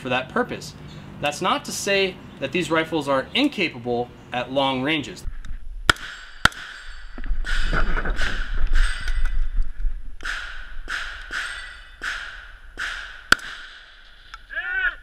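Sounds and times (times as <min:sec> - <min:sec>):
rifle gunshots: 0:10.2 - 0:14.0.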